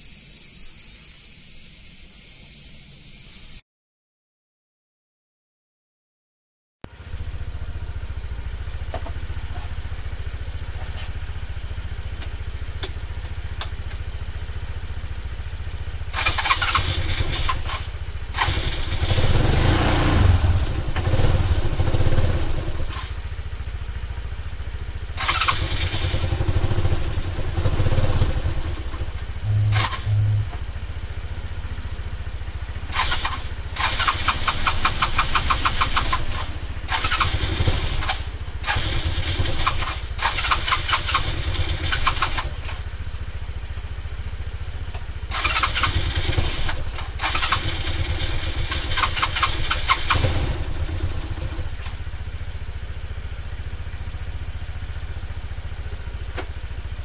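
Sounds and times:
scooter engine revving unevenly: 16.1 - 43.0, 45.3 - 53.2.

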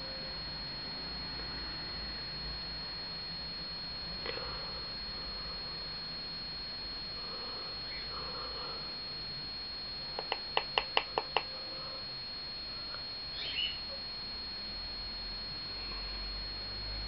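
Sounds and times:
faint high-pitched whine: 0.0 - 17.0.

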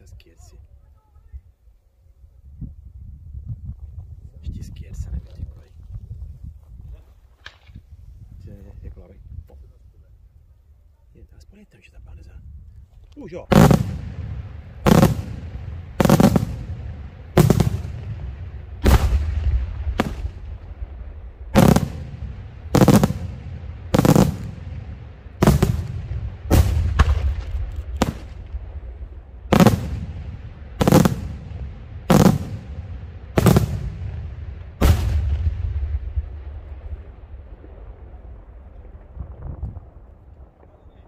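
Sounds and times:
rolling echo: 13.4 - 41.0
firework shells bursting: 13.5 - 20.7, 21.6 - 28.7, 29.5 - 36.0.

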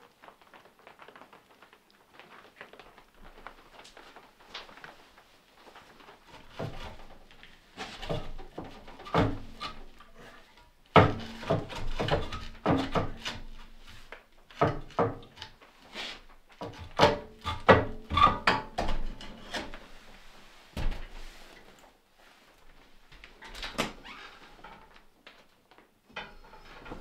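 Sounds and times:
metal clanks and scrapes: 26.1 - 27.0.

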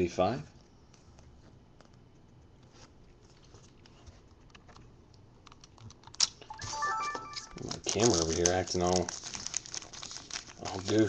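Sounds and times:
trading cards clicking and rustling: 3.6 - 11.0.

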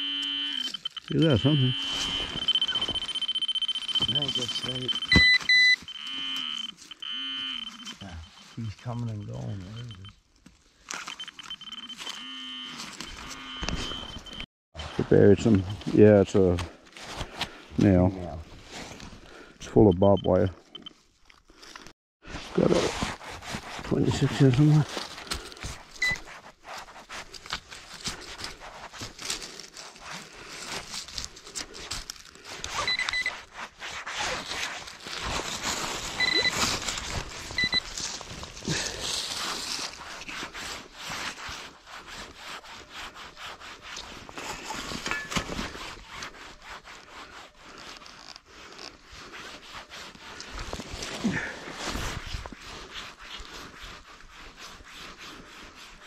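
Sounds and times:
short high electronic beeps: 0.0 - 8.2, 32.9 - 33.3, 36.2 - 36.6, 37.6 - 37.8
hands scraping through soil and leaves: 0.8 - 5.2, 7.8 - 11.0, 21.0 - 56.0.

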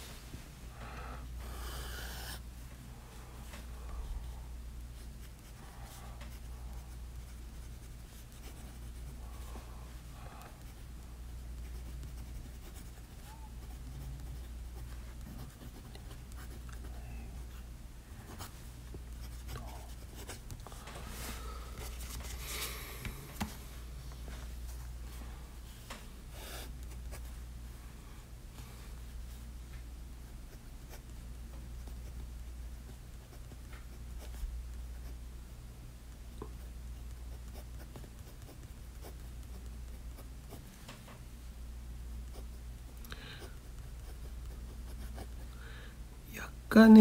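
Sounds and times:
pen scratching on paper: 5.0 - 5.6, 6.3 - 9.2, 11.6 - 17.6, 19.2 - 20.6, 36.6 - 40.6, 43.5 - 45.4.

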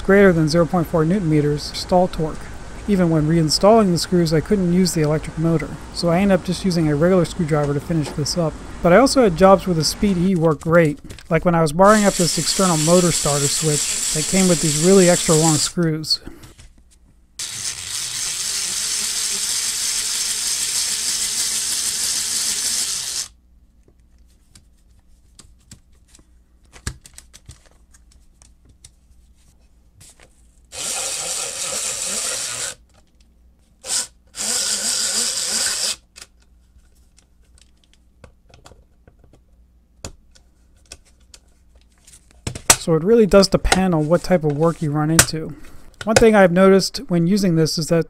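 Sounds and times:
electric screwdriver whirring: 12.0 - 15.7, 17.4 - 23.4, 30.7 - 32.8, 33.8 - 36.0.

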